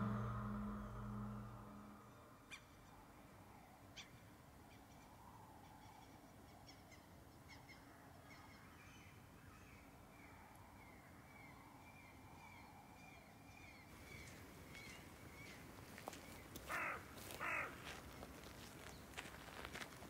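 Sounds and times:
footsteps on gravel: 16.0s - 20.0s
crow cawing: 16.7s - 17.8s.

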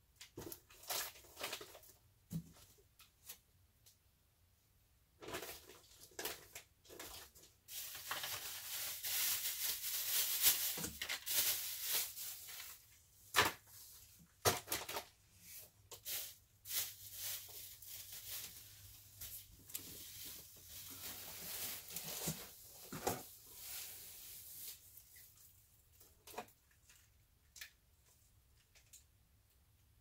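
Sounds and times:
plastic bags crinkling: 5.6s - 13.0s, 15.9s - 25.0s.

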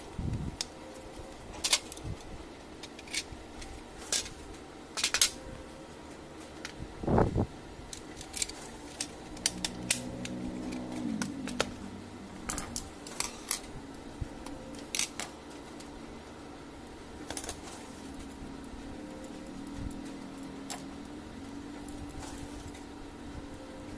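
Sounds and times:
faint low hum: 0.0s - 23.9s.

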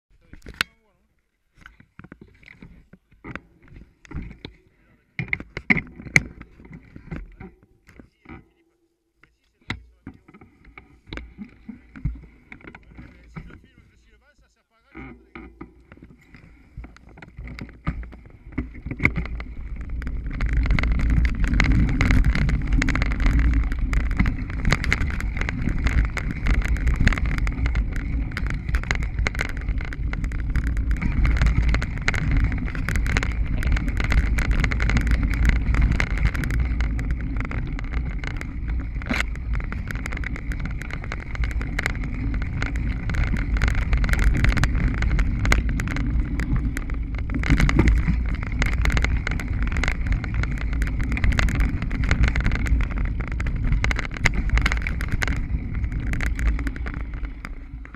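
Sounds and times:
bike rattling over bumps: 1.5s - 14.3s, 14.9s - 57.9s
bike tyres rumbling on dirt: 1.6s - 8.6s, 9.3s - 14.3s, 14.9s - 57.9s
wind on microphone: 15.8s - 57.9s.

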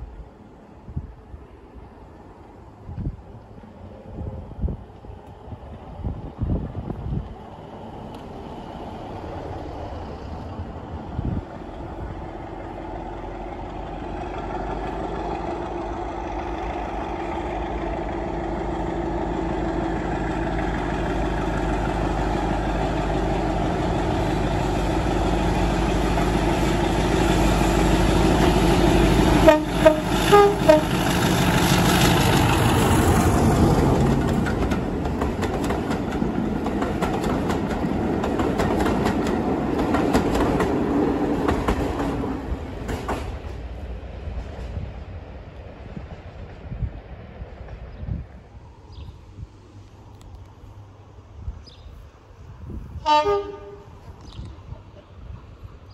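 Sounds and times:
diesel locomotive engine: 0.0s - 55.9s
wheels clattering over rails: 25.9s - 43.8s
train horn blasts: 29.1s - 31.0s, 53.0s - 54.0s.

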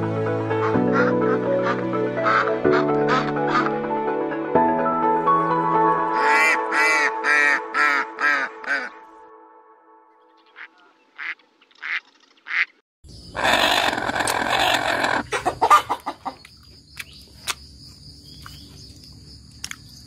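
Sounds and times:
duck calls: 10.6s - 12.8s, 13.4s - 16.4s.

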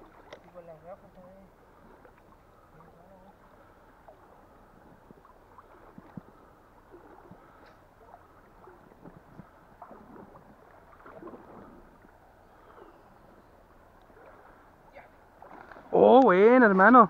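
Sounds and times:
small splashes and knocks: 0.0s - 1.2s, 5.0s - 12.1s, 15.3s - 16.4s.

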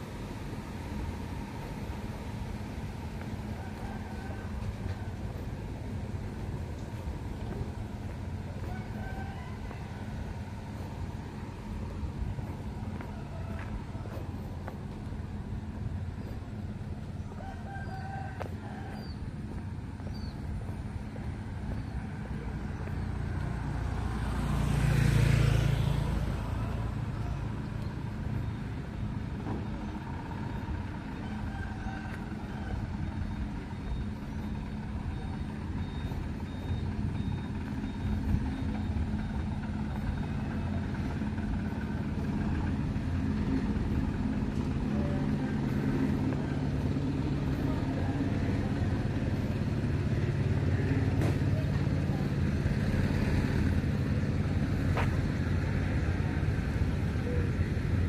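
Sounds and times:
vehicle engine humming: 0.0s - 58.0s
vehicle passing close by: 0.0s - 58.0s.

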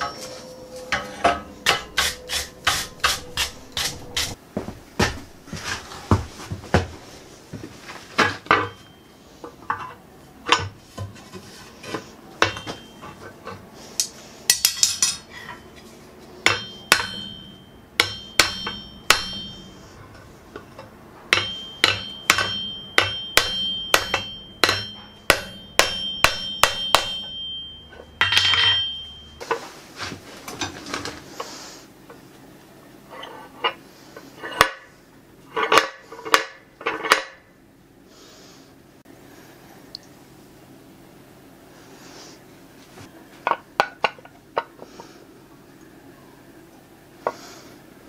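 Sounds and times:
hammer striking hot metal on anvil: 0.9s - 4.4s, 12.4s - 13.0s, 16.4s - 19.8s, 21.3s - 29.2s.

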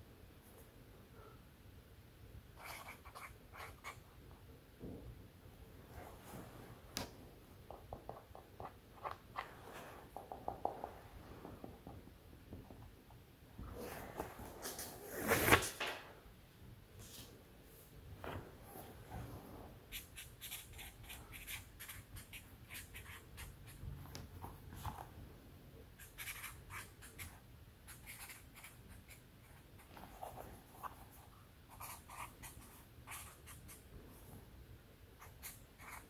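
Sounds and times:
marker scratching on paper: 2.6s - 4.0s, 19.9s - 23.8s, 26.0s - 33.8s, 35.2s - 36.0s.

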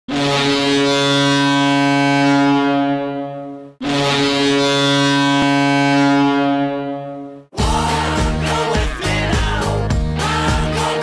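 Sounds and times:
arena goal horn blasts: 0.1s - 7.5s.

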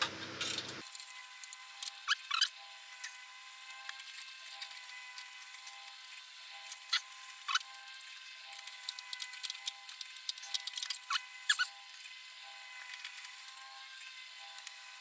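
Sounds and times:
hand tools clicking on metal: 0.8s - 11.7s.

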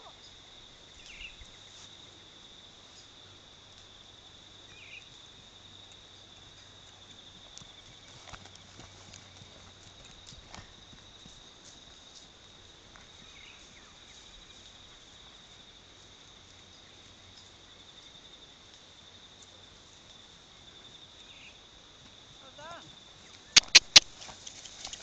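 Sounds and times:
insect chirring: 0.0s - 25.0s
pony hoofbeats on grass: 5.1s - 18.5s, 21.9s - 25.0s.

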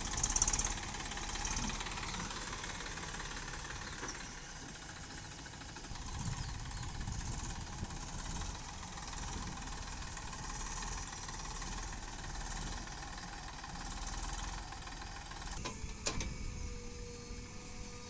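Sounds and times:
diesel engines running at low revs: 0.0s - 18.0s.

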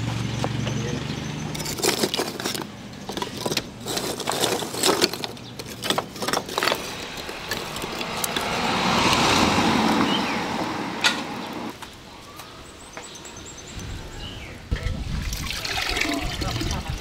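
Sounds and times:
vehicle passing by: 6.7s - 11.8s.

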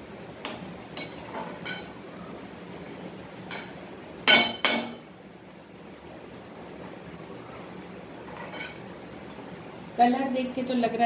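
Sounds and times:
steady low hiss: 0.0s - 11.0s
spatula clinking on metal pan: 3.5s - 5.0s.

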